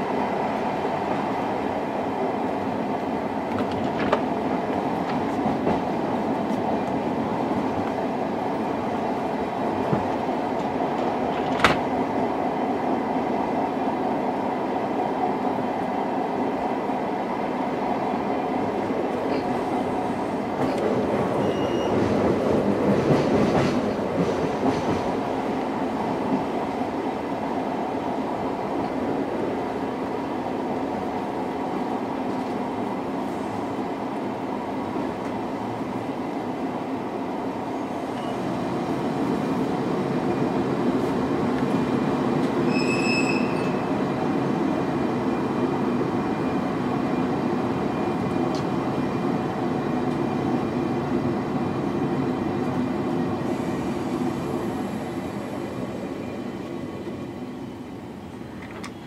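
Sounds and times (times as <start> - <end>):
train wheels rumbling on rails: 0.0 - 59.0
high wheel squeal: 21.3 - 22.1, 42.6 - 43.9.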